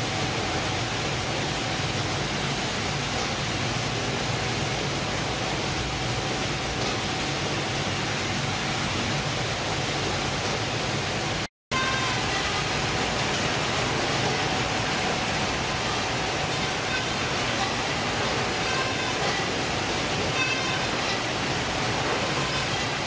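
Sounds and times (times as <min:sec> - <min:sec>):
processing machinery running: 0:00.0 - 0:23.0.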